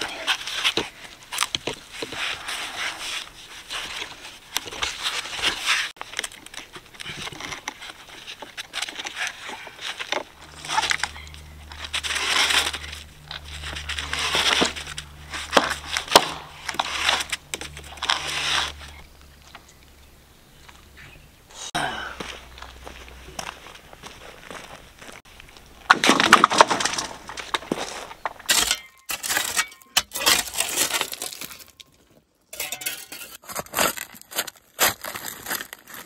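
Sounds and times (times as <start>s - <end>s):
plastic pipe scraping on gravel: 0.1s - 19.1s, 25.8s - 31.8s
gravel clicks: 0.1s - 21.2s, 22.1s - 29.6s.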